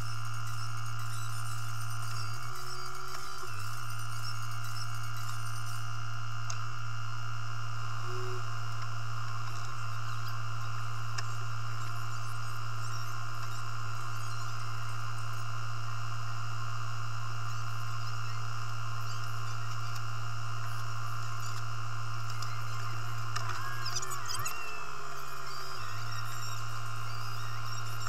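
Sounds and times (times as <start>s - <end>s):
telehandler engine drone: 0.0s - 28.0s
thin high whine: 0.0s - 28.0s.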